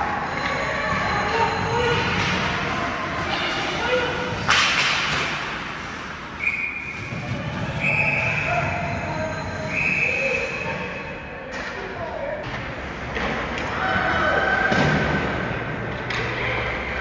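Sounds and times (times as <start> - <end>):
arena noise: 0.0 - 17.0
hockey stick cracking on puck: 4.4 - 5.4.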